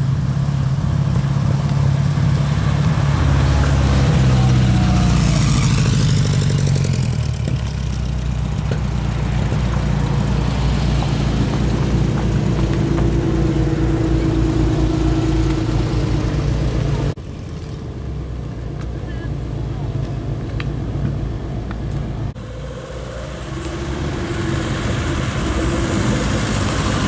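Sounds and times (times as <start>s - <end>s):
car engine humming: 0.0s - 27.0s.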